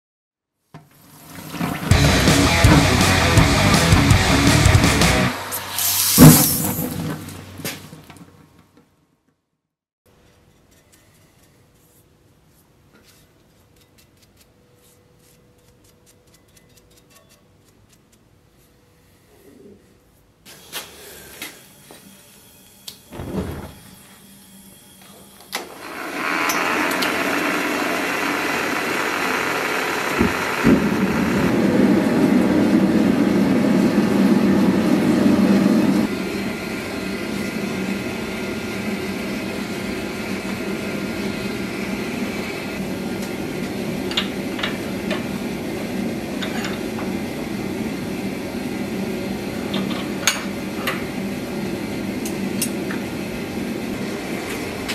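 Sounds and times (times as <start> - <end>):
gas forge burner rushing: 1.1 - 7.8, 23.1 - 24.2, 25.6 - 54.9.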